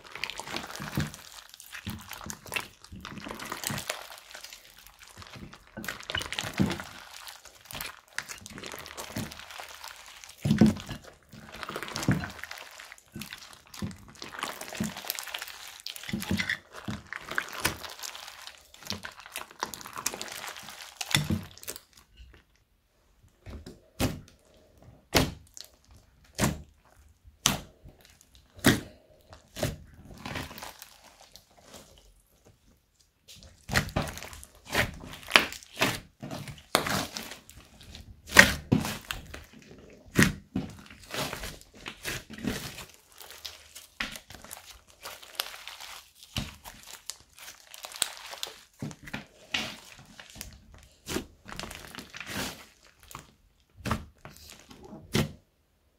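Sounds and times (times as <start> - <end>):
slime squishing and popping: 0.0 - 22.7, 23.5 - 55.5.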